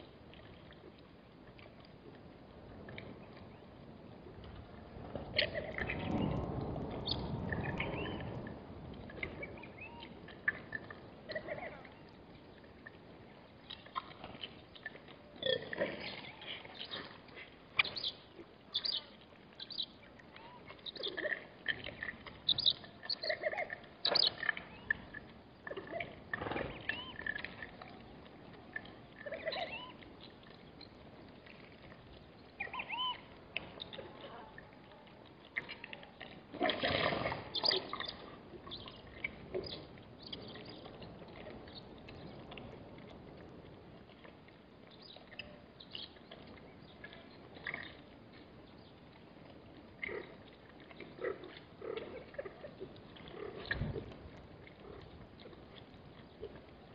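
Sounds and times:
warthogs squeaking and grunting: 20.4s - 25.1s, 25.7s - 27.5s, 29.2s - 30.0s, 32.6s - 33.3s, 36.5s - 38.9s, 50.0s - 54.0s.

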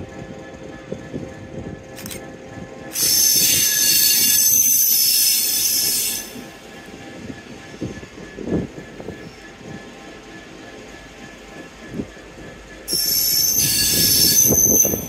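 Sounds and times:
train wheels rumbling on rail: 0.0s - 15.0s
high-pitched brake squeal: 3.0s - 6.5s, 12.9s - 15.0s.

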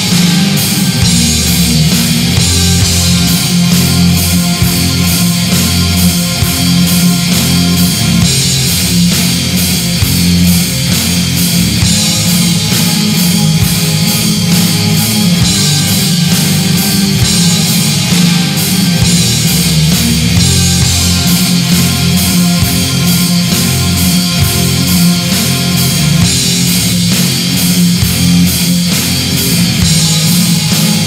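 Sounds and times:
bass holding low notes: 0.0s - 31.0s
cymbal hits: 0.0s - 31.0s
heavy distorted electric guitars: 0.0s - 31.0s
steady drum beat: 0.0s - 31.0s.

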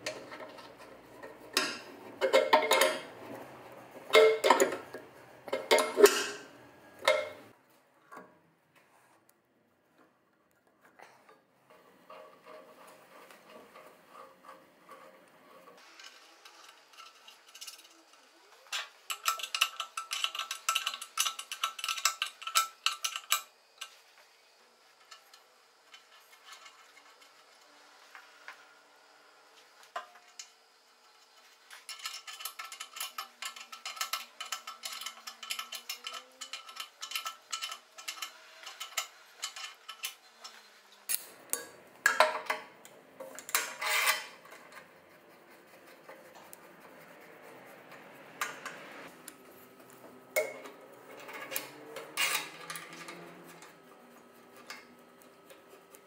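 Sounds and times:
rapid metallic clicking and rattling: 12.1s - 24.0s, 31.3s - 41.3s.

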